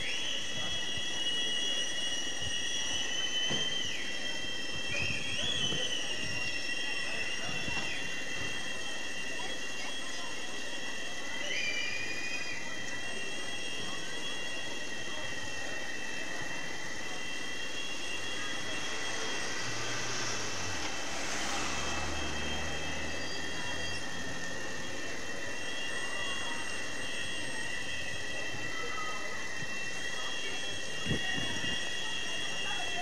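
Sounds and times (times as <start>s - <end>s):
street noise: 0.0s - 33.0s
car driving past: 18.9s - 24.6s.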